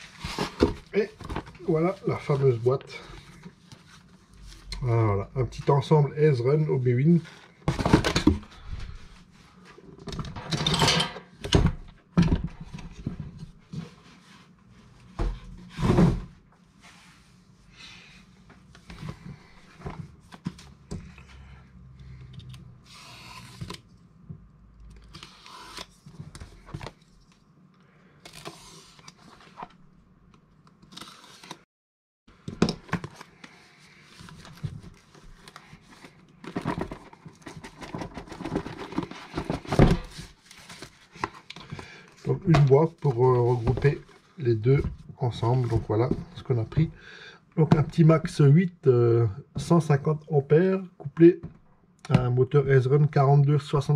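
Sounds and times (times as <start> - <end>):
cardboard box being opened: 36.0 - 41.3.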